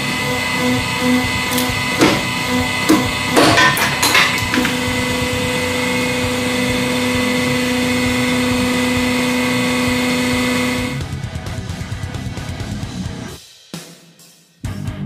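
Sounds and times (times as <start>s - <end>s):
hydraulic press pump hum: 0.0s - 11.0s.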